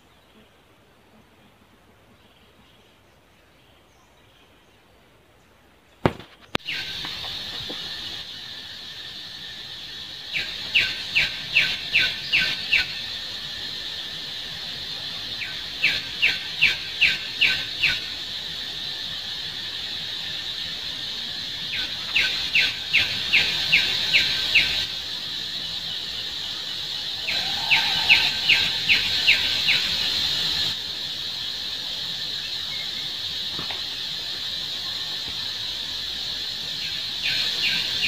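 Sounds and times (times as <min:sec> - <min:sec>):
high buzz of insects: 0:06.0 - 0:38.0
bird calling sharp falling notes: 0:27.2 - 0:29.3.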